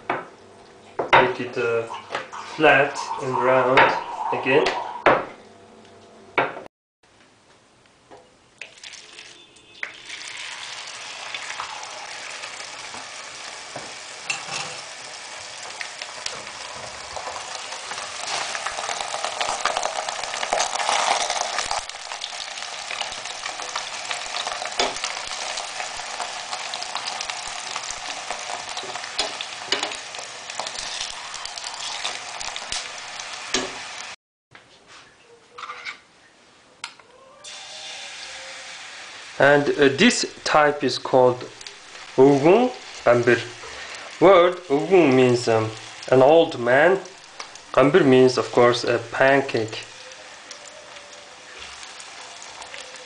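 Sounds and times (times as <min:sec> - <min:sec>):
dough frying in hot oil: 0:08.6 - 0:34.2, 0:37.5 - 0:53.0.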